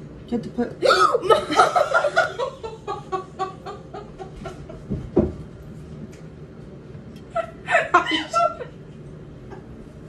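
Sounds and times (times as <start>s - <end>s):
woman laughing hard: 1.0s - 4.9s, 7.3s - 8.8s.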